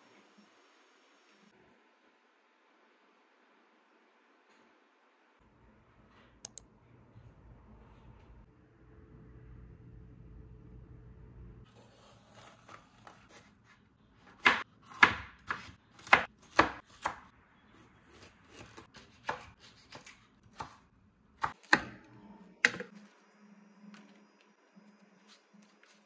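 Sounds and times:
knife chopping on cutting board: 0:14.2 - 0:17.2, 0:18.1 - 0:20.8.

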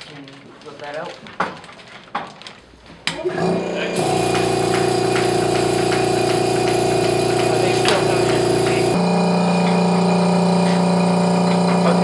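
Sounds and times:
motor hum: 0:03.2 - 0:12.0.

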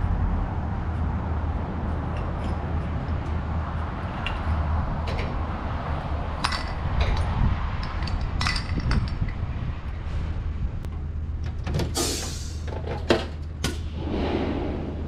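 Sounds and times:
diesel truck engine rumble: 0:00.0 - 0:13.7
metallic clinks and rattles: 0:06.4 - 0:09.4.

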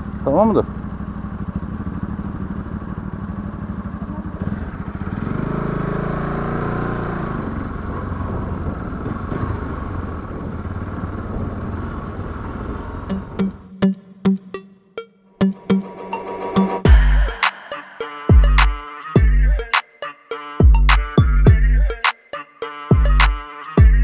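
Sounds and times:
motorcycle engine revving: 0:00.0 - 0:13.7.

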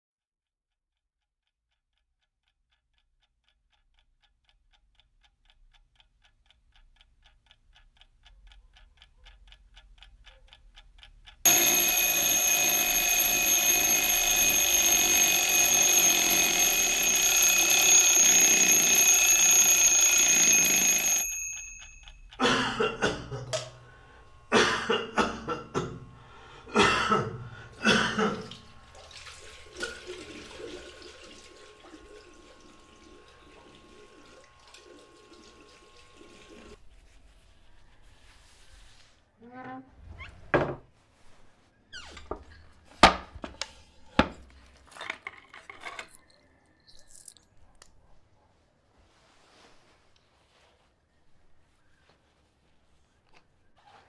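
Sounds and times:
clock ticking: 0:00.9 - 0:29.0
alarm clock ringing: 0:11.4 - 0:36.8.

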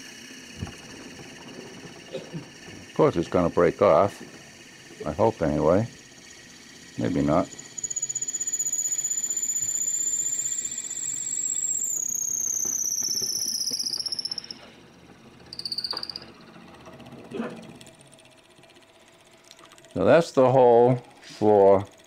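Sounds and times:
drill bit squealing in wood: 0:00.5 - 0:17.9.

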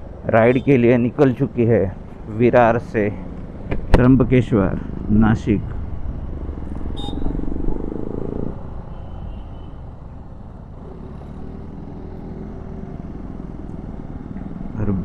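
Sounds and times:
low wind rumble: 0:00.0 - 0:11.0
motorcycle engine running: 0:09.4 - 0:15.0.

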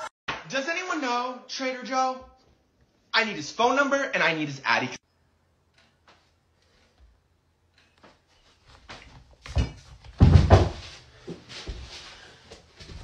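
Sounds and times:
heavy body thumps: 0:09.4 - 0:11.0.

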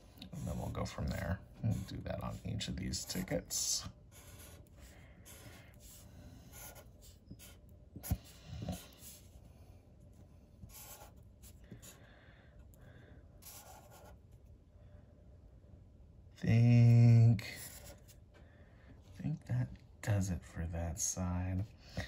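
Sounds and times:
marker strokes on paper: 0:00.2 - 0:04.7, 0:05.3 - 0:09.4, 0:10.7 - 0:11.2.

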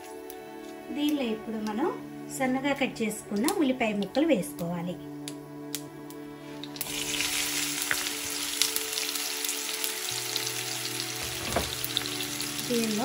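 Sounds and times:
onions sizzling in oil: 0:06.4 - 0:13.0.

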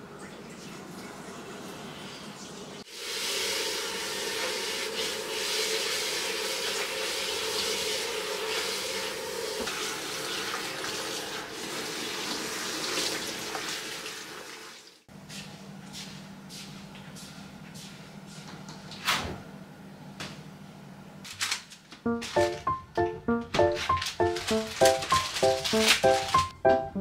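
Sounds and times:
tap water running into sink: 0:04.4 - 0:15.0.

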